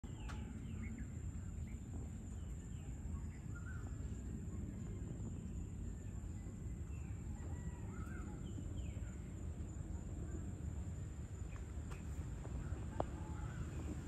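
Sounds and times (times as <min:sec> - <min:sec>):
faint bird chirps: 0:00.0 - 0:10.5
steady low rumble: 0:00.0 - 0:14.0.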